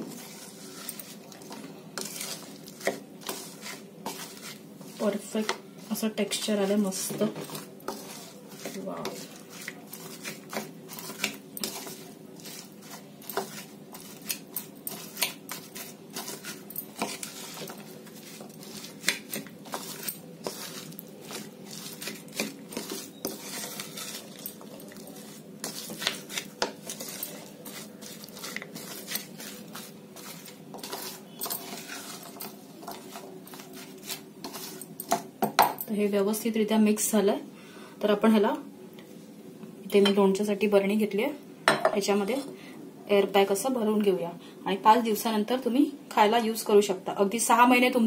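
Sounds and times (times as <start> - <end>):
spatula scraping a bowl: 0.0 - 35.2
faint steady hum: 29.6 - 47.4.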